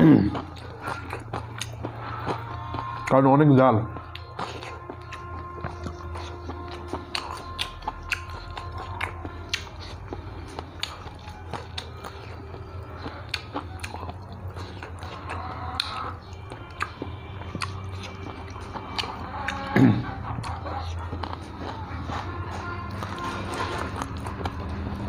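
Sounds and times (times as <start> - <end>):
man chewing food: 0.0 - 25.0.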